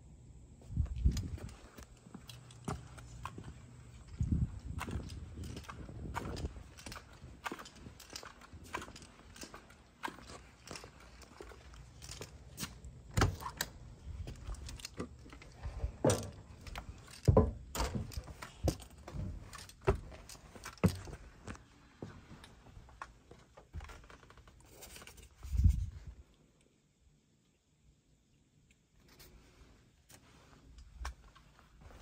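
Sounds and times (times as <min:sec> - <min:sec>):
footsteps on steps: 0:00.8 - 0:24.2
sharp clicks and thuds: 0:04.2 - 0:21.6.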